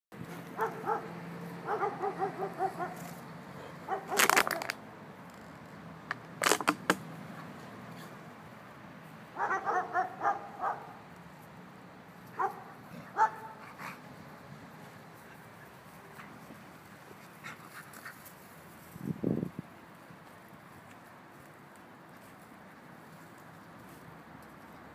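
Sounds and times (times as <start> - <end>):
dogs barking and yipping: 0.3 - 4.7, 9.4 - 11.0, 12.3 - 14.0.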